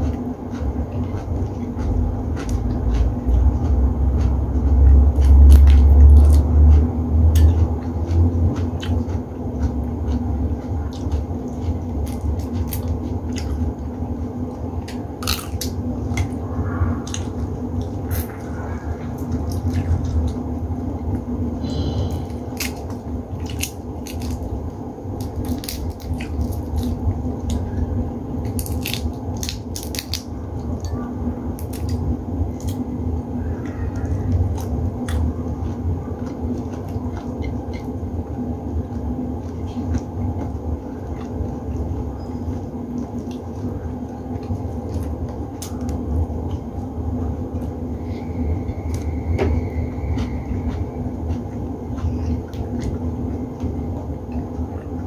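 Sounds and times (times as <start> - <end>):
steady low hum: 0.0 - 55.0
shrimp shells cracking: 22.6 - 24.5, 28.5 - 30.3.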